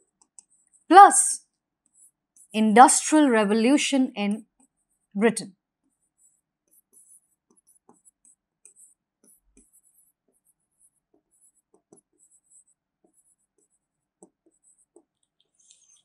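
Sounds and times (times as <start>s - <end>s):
pen scratching on writing board: 0.0s - 0.9s, 1.8s - 2.6s, 5.8s - 16.0s.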